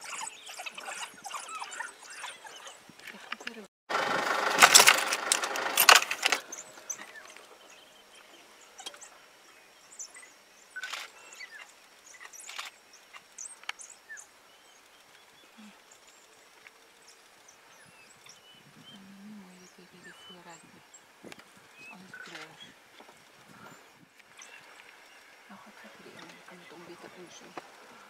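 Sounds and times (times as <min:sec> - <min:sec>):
high animal chirps and squeaks: 0:00.0 - 0:03.5.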